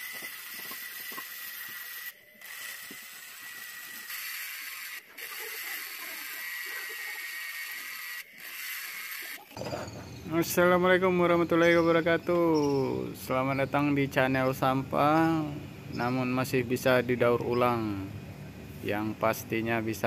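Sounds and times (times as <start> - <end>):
drill bit scratching steel: 0.0 - 10.2
small drill motor whining: 0.0 - 10.2.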